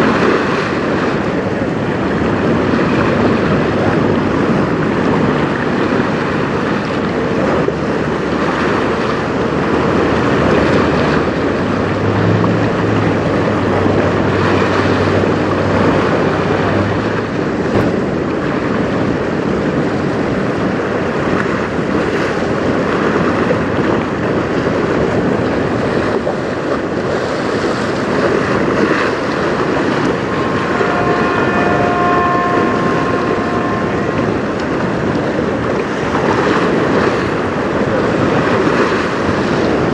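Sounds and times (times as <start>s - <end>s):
choppy river water: 0.0s - 39.9s
wind buffeting microphone: 0.0s - 39.9s
brief higher tone: 29.5s - 35.8s.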